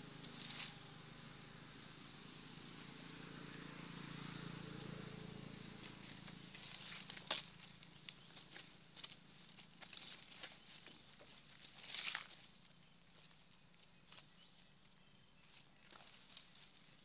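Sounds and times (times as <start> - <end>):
dry leaves crackling: 0.1 - 0.8, 5.3 - 14.8, 15.5 - 17.0.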